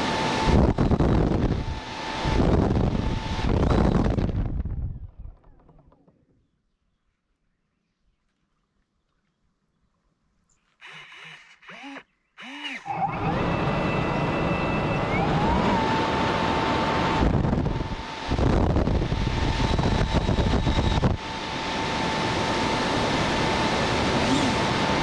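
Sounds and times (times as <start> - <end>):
electric ducted fans whining: 0.0 - 5.9, 10.8 - 25.0.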